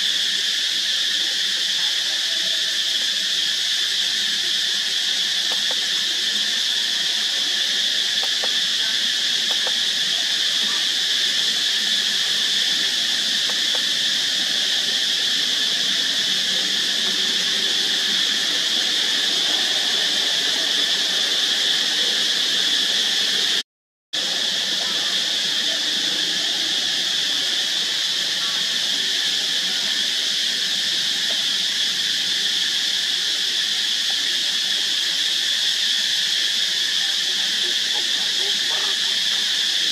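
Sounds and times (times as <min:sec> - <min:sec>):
insect chorus drone: 0:00.0 - 0:23.6, 0:24.2 - 0:39.9.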